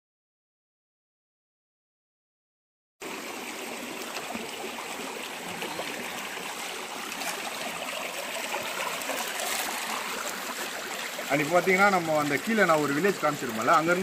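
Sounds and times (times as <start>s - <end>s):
stream running over rocks: 3.0s - 14.0s.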